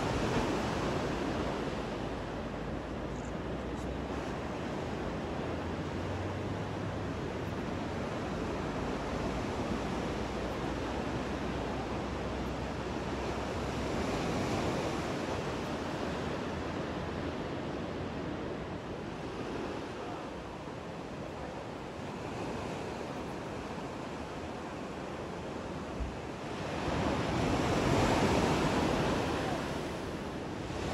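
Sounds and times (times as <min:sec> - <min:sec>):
waves breaking: 0:00.0 - 0:30.9.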